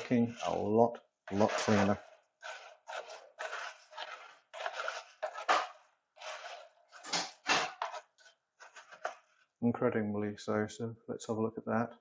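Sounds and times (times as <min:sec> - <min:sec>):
metal pieces stirred in plastic jug: 0:00.0 - 0:09.5.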